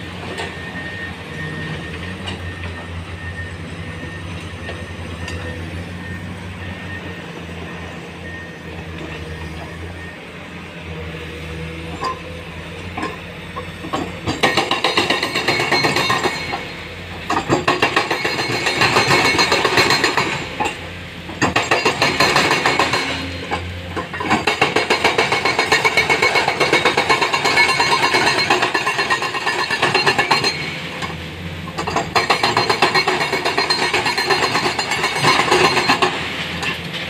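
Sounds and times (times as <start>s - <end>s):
hydraulic breaker hammering rock: 13.8s - 36.8s.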